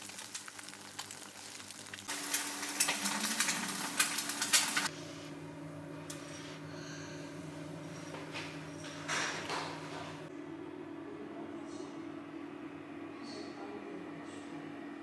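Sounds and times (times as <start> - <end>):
eggs frying in oil: 0.0 - 4.9.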